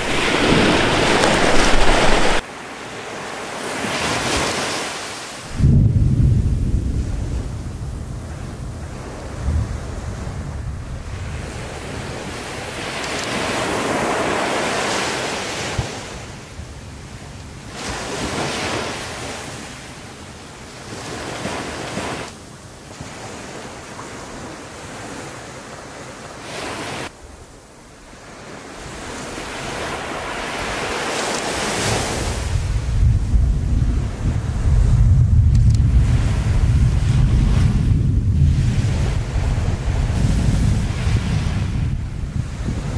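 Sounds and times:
wind buffeting microphone: 0.0s - 2.4s, 5.5s - 18.5s, 28.7s - 42.9s
surf on shore: 0.0s - 42.9s.

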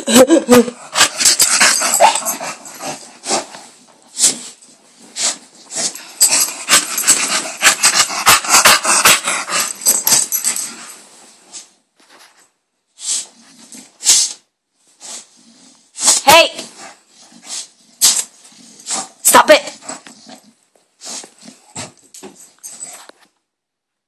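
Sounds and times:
dog making rough noises: 0.6s - 11.0s, 15.0s - 22.1s.

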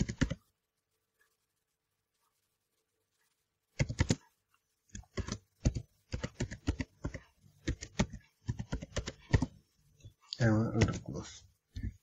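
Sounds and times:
typing on computer keyboard: 0.0s - 0.4s, 3.8s - 4.2s, 4.9s - 9.6s, 10.8s - 11.1s.

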